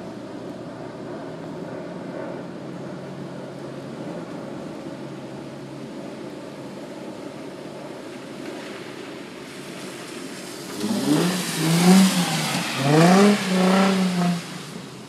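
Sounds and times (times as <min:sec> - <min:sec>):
tyres hissing through water: 0:10.1 - 0:15.0
car engine revving: 0:10.7 - 0:15.0.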